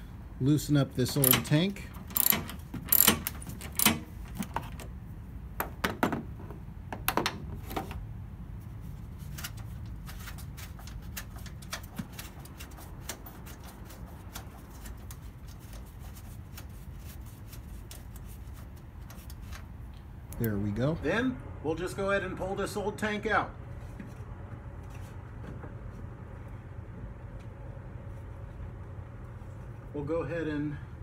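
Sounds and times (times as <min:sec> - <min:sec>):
low steady hum: 0:00.0 - 0:31.0
socket ratchet clicking: 0:01.1 - 0:04.5.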